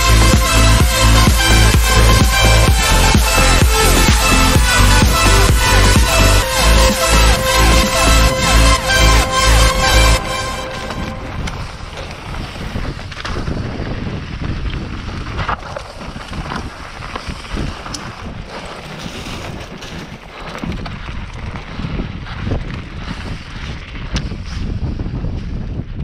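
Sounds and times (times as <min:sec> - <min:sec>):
wind buffeting microphone: 0:10.8 - 0:26.0
bike tyres rumbling on dirt: 0:10.9 - 0:26.0
bike knocks and rattles: 0:13.0 - 0:24.5.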